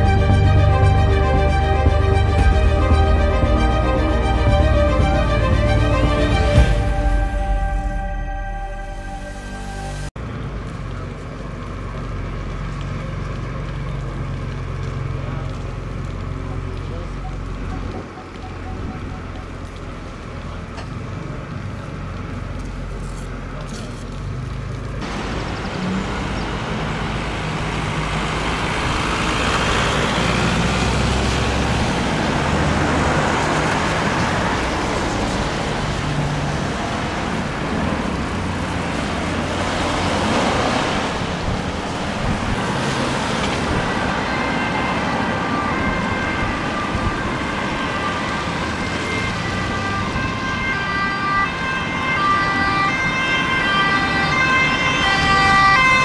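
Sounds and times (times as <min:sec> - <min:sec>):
two-tone police siren: 0:00.0 - 0:10.1, 0:16.8 - 0:20.2, 0:42.2 - 0:56.0
cars driving past: 0:24.2 - 0:56.0.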